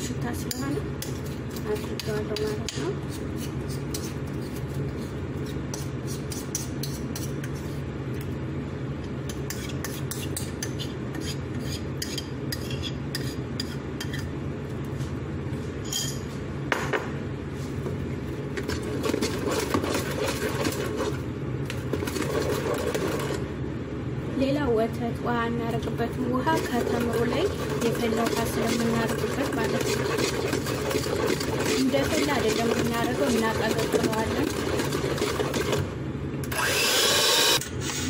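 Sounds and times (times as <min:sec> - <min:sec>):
steady low hum: 0:00.0 - 0:38.0
spoon scraping a bowl: 0:00.4 - 0:07.8, 0:09.3 - 0:14.3, 0:18.6 - 0:21.2, 0:21.9 - 0:23.4, 0:26.4 - 0:35.8
electric hand mixer whirring: 0:21.9 - 0:23.4, 0:26.5 - 0:37.6.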